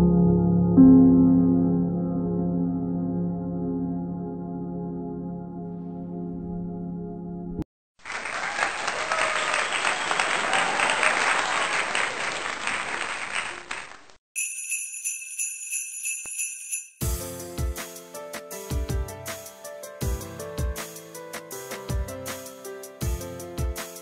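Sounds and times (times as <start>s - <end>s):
applause: 8.0s - 14.2s
high tinkling jingle: 14.4s - 17.1s.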